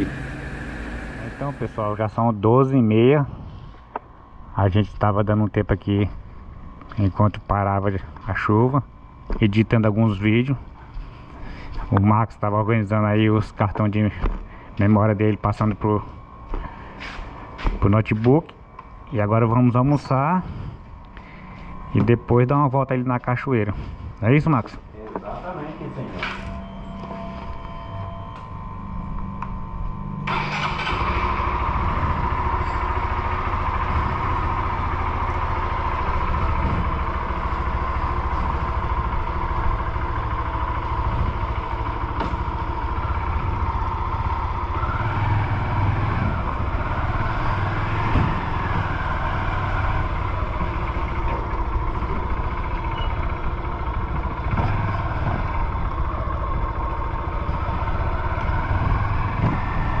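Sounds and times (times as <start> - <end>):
motorcycle engine running: 0.0 - 2.4, 24.7 - 60.0
road and wind noise: 0.0 - 60.0.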